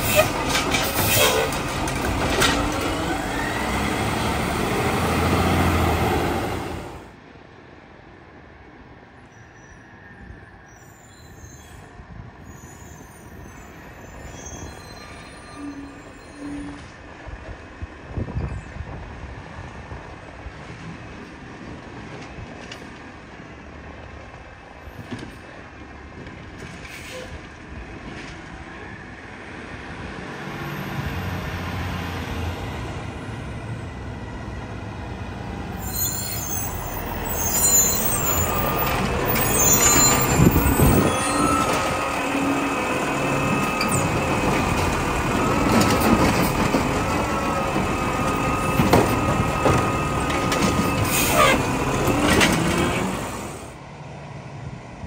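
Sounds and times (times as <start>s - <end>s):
garbage truck engine: 0.0s - 7.1s, 35.7s - 53.8s
air brakes hissing: 50.8s - 51.8s.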